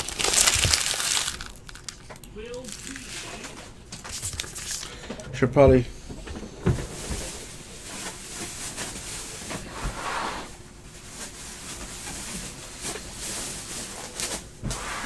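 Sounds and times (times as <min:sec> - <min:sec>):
wrappers rustling and crinkling: 0:00.0 - 0:04.9, 0:10.9 - 0:14.4.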